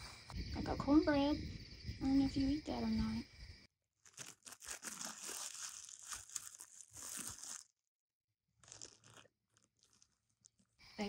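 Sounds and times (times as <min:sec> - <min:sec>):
food packaging crinkling and tearing: 0:04.0 - 0:07.8, 0:08.6 - 0:10.8.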